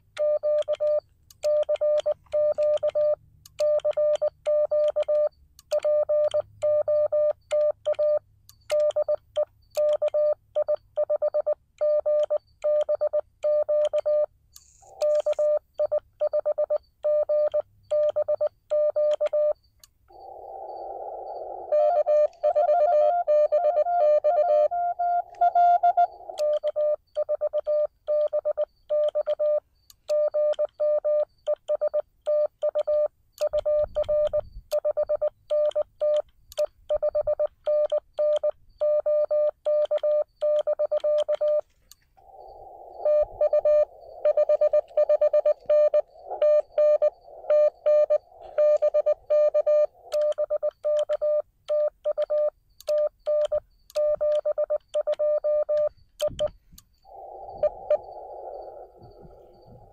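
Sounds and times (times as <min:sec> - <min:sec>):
morse code tone: 0:20.2 - 0:29.6, 0:36.9 - 0:56.5
receiver hiss: 0:41.7 - 0:51.2, 0:56.2 - 0:59.9.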